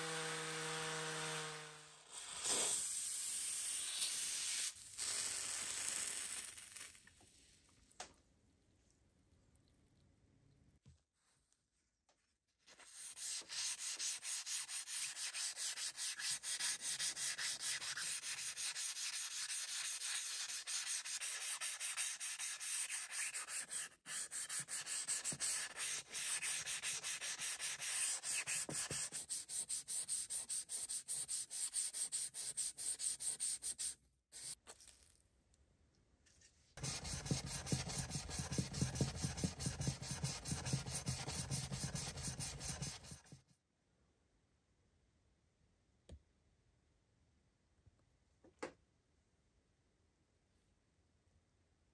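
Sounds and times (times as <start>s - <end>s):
sandpaper rubbing on steel: 12.8s - 34.6s, 36.8s - 43.4s.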